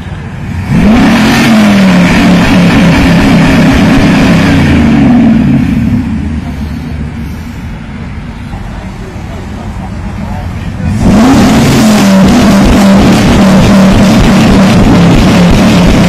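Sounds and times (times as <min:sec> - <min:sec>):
car engine revving hard: 0:00.4 - 0:07.2, 0:10.7 - 0:16.0.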